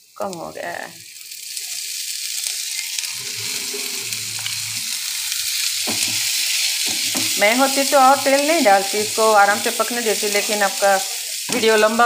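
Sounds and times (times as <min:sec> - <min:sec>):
vegetables sizzling in oil: 0:00.0 - 0:12.0
spatula stirring: 0:02.4 - 0:12.0.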